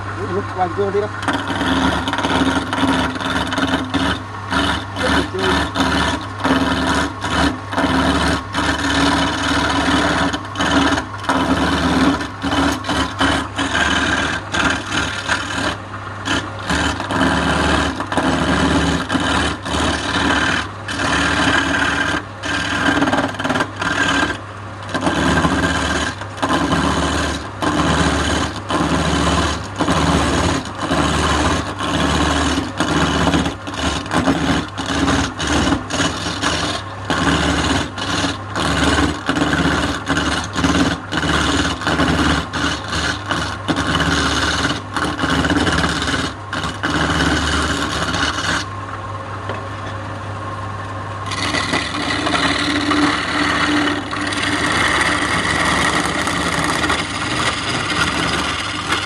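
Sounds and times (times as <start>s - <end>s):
chisel cutting spinning wood: 0.0s - 59.0s
lathe motor hum: 0.0s - 59.0s.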